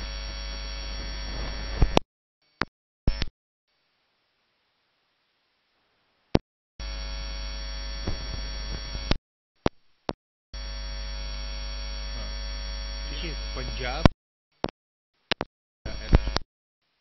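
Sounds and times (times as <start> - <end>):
electrical hum: 0.0 - 17.0
clicks: 15.3 - 16.4.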